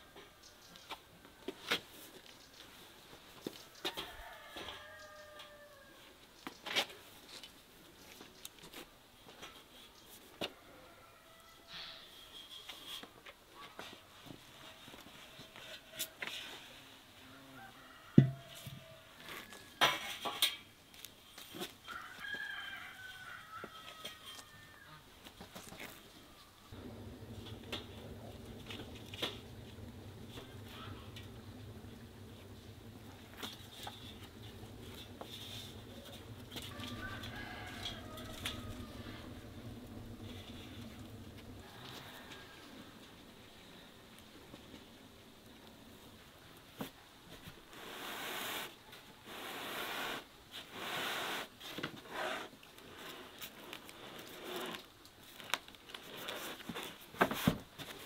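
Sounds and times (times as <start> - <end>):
firewood knocking on metal rack: 18.2 - 18.4
low steady hum: 26.4 - 46.4.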